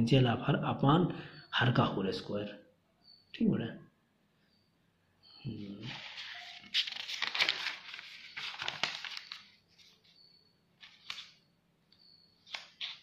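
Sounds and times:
paper rustling and crinkling: 5.8 - 10.2, 10.8 - 11.4, 12.4 - 13.0.

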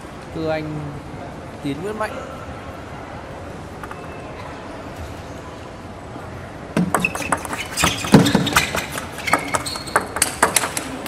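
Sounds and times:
table tennis ball clicks: 6.8 - 11.0.

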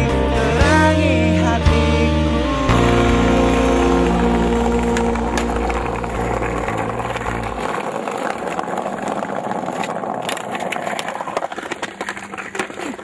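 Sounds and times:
background music: 0.0 - 7.2
skateboard wheels rolling on asphalt: 0.0 - 13.0
skateboard clicks and clacks: 2.7 - 13.0.

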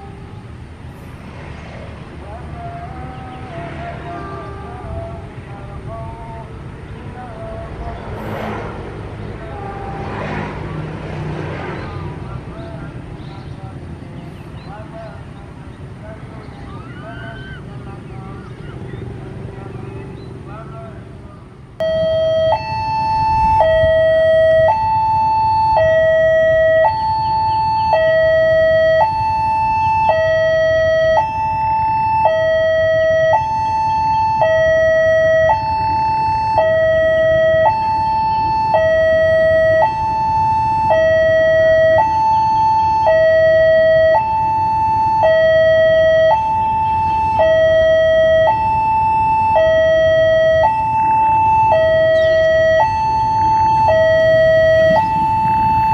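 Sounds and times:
two-tone warning siren: 0.0 - 1.7, 2.4 - 5.5, 7.0 - 11.8, 21.8 - 55.9.

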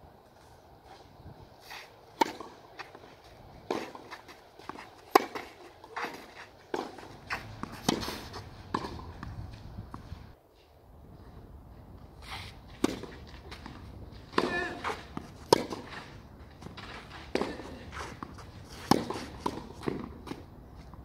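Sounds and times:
racket hitting tennis ball: 1.8 - 10.1, 12.2 - 20.5
tennis ball bouncing: 2.1 - 10.2, 12.8 - 20.5.

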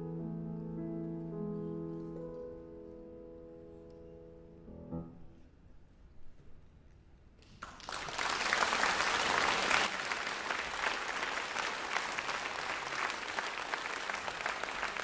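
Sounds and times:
audience applauding: 7.6 - 15.0.

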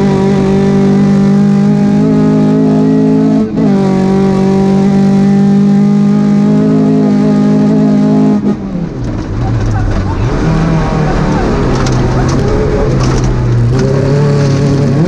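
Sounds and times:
rally car engine at high revs: 0.0 - 15.0.

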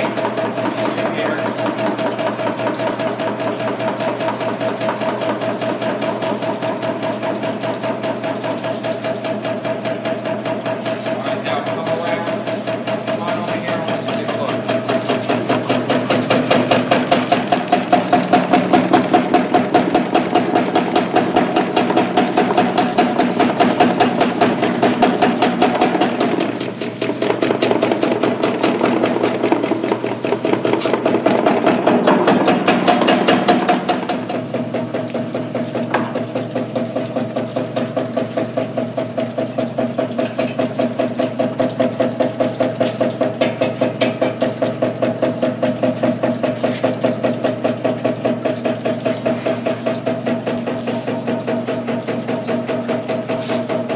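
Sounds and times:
motor hum: 0.0 - 53.9.

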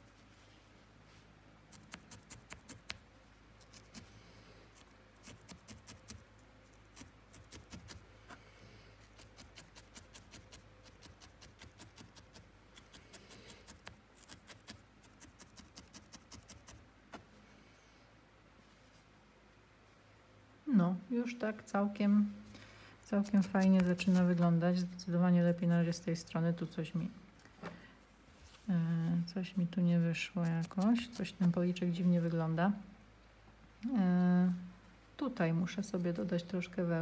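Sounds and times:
felting needle clicking into wool: 1.7 - 3.0.

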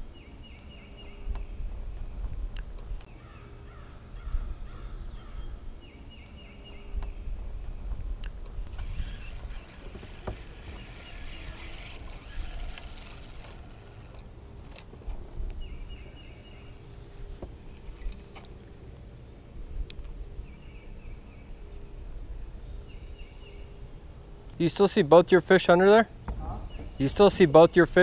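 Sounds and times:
faint steady hum: 0.0 - 24.9
wind rumble: 1.2 - 5.8, 6.8 - 16.1
water around a boat: 8.0 - 14.4.

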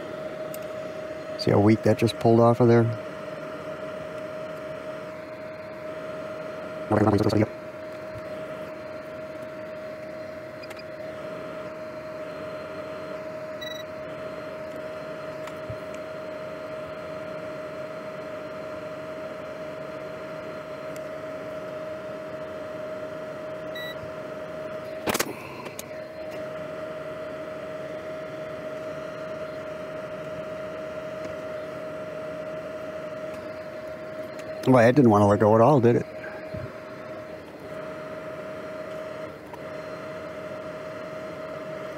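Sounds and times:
fan whine with hiss: 0.0 - 41.9
sharp click: 25.1 - 25.9.

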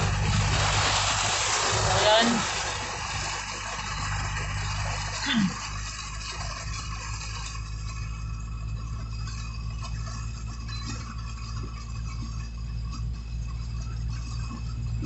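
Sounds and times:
road noise: 0.0 - 10.5
rain ticking on windshield: 0.0 - 15.0
vehicle engine hum: 0.0 - 15.0.

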